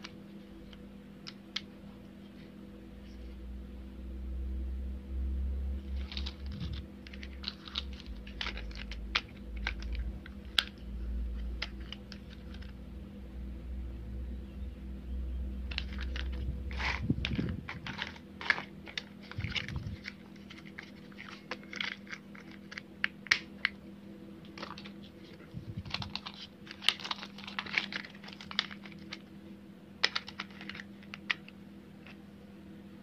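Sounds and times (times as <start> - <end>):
faint steady hum: 0.0 - 33.0
plastic toy parts clicking: 30.0 - 31.4.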